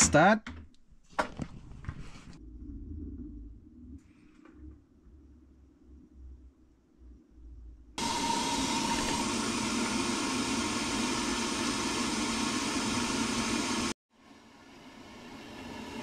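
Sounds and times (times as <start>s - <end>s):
water pouring into washing machine: 8.0s - 13.9s.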